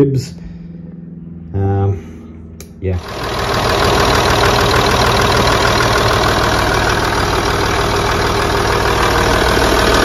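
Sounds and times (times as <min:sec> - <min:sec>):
diesel engine idling: 0:03.0 - 0:10.0.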